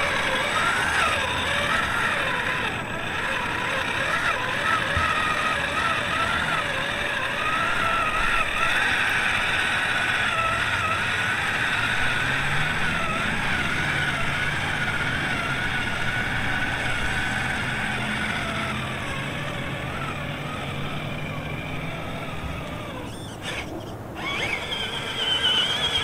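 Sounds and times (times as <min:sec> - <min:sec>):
toy truck electric motor whining: 0:00.0 - 0:26.0.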